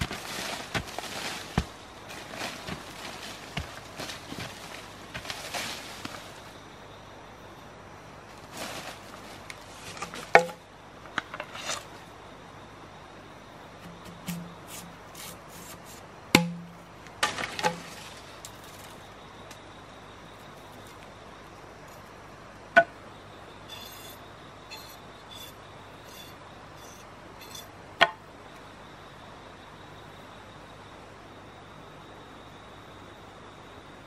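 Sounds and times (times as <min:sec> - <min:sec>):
scraping in soil: 0:00.0 - 0:06.5, 0:08.3 - 0:10.4, 0:13.8 - 0:16.1
machete blade knocking in soil: 0:16.4 - 0:17.9.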